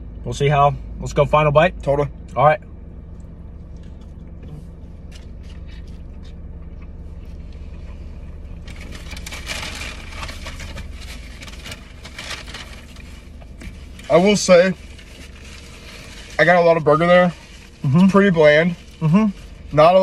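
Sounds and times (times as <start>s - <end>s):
low hum in car cabin: 0.0s - 20.0s
chewing: 3.1s - 8.0s
paper wrapper rustling: 8.6s - 19.9s.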